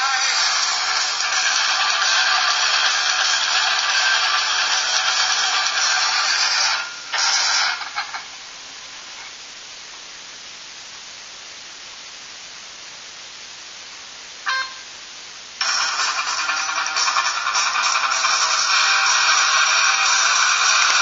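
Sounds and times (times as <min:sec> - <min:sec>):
music: 0:00.0 - 0:08.2, 0:15.6 - 0:21.0.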